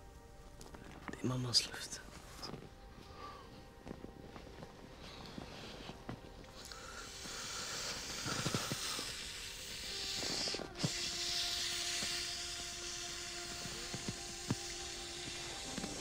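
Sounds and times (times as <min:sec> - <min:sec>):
air hissing from valve: 0:06.5 - 0:16.0.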